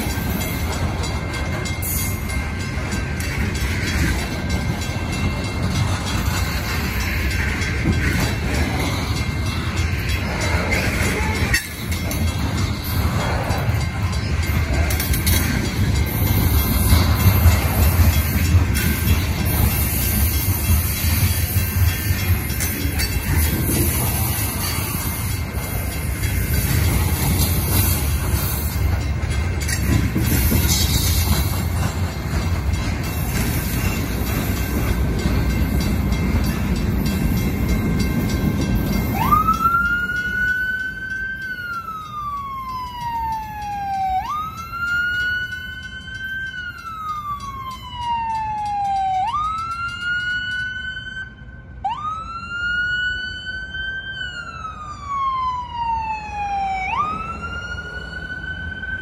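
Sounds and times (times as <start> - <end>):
crossing bells ringing: 0.0 - 52.4
freight train cars rumbling: 0.0 - 52.4, 54.4 - 59.0
ambulance siren wailing: 38.9 - 59.0.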